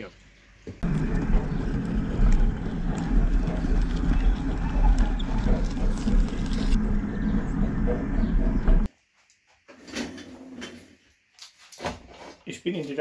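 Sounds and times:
loud low mechanical rumble: 0.8 - 8.9.

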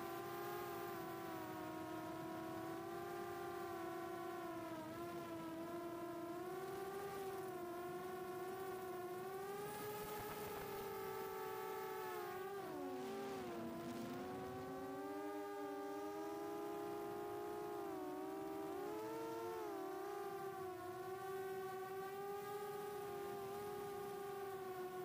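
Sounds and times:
quadcopter motors whining: 0.0 - 25.0.

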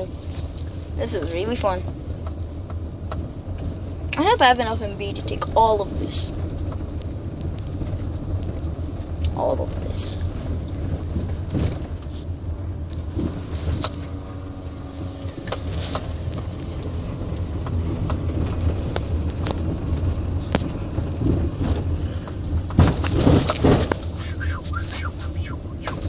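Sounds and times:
car cabin rumble: 0.0 - 26.0
knocks and rattles: 15.0 - 26.0.

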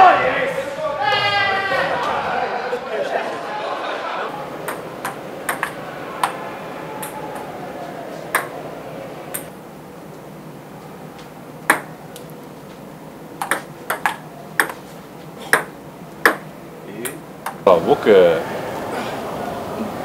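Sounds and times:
ping-pong ball hitting paddles: 4.6 - 6.4, 7.0 - 7.6, 8.3 - 8.6, 9.3 - 9.5, 11.6 - 12.3, 13.4 - 14.9, 15.5 - 17.7.

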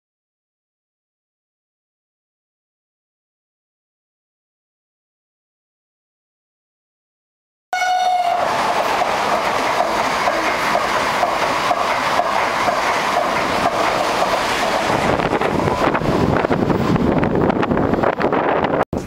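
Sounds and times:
train wheels rumbling on rails: 7.8 - 19.0.

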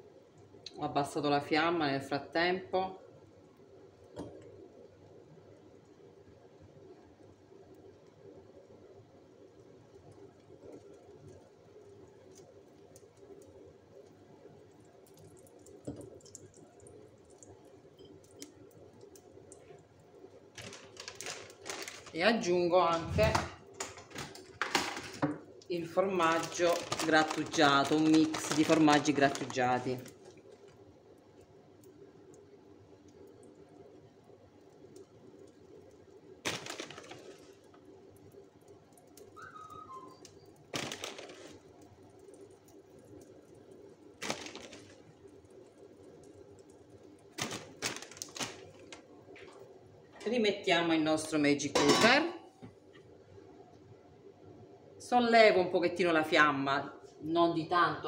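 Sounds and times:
faint steady hum: 0.0 - 58.0
omelette crackling in a pan: 3.0 - 22.8, 23.6 - 50.1
cheese packet rustling and scraping: 20.6 - 22.2, 26.2 - 30.7, 36.5 - 37.6, 40.7 - 41.7, 44.2 - 45.0, 47.4 - 49.6.

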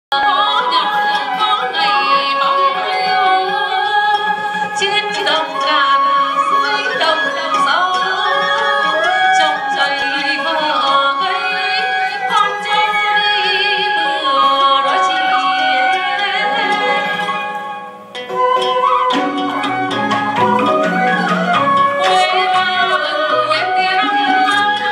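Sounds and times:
small instrumental ensemble: 0.1 - 24.9
person singing melody: 19.5 - 24.9.

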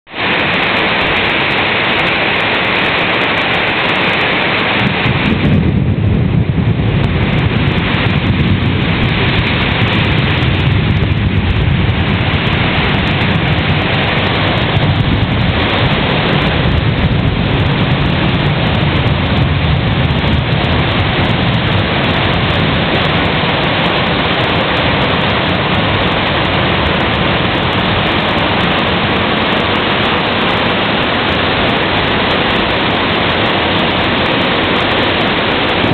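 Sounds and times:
deep rumble: 0.1 - 35.9
heavy rain pouring: 0.1 - 35.9.

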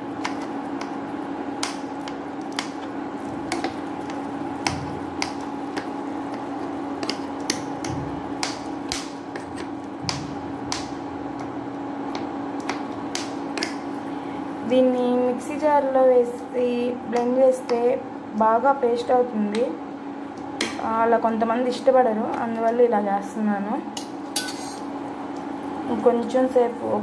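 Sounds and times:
spoon mashing fruit in a pan: 0.0 - 14.1
steady hum: 0.0 - 27.0.

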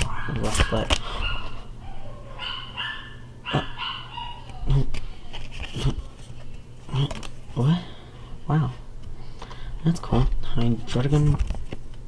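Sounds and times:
dog whining: 0.0 - 5.2.

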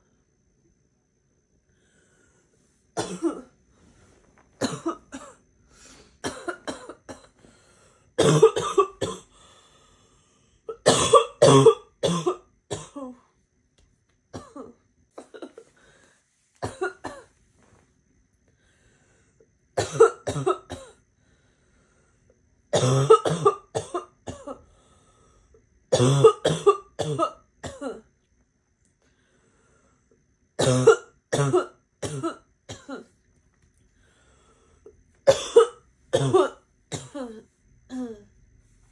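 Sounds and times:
girl coughing harshly: 3.0 - 3.5, 4.6 - 5.4, 6.2 - 7.4, 8.2 - 9.3, 10.7 - 13.2, 14.3 - 15.7, 16.6 - 17.3, 19.8 - 21.0, 22.7 - 24.6, 25.9 - 28.1, 30.6 - 33.1, 35.2 - 38.3.

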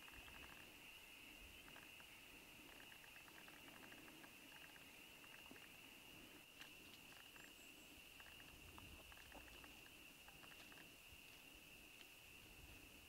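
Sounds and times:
soft ticks: 8.2 - 11.4, 12.0 - 12.2.

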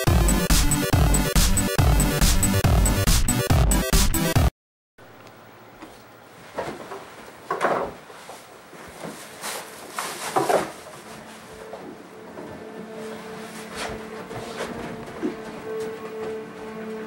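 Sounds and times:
rustling of clothing: 5.8 - 16.8.

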